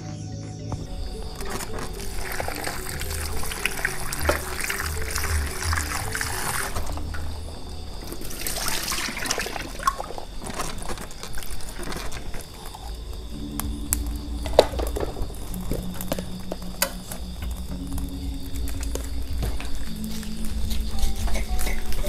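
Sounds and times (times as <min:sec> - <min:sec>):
soft background music: 0:00.0 - 0:22.0
water splashing at a sink: 0:08.0 - 0:12.4.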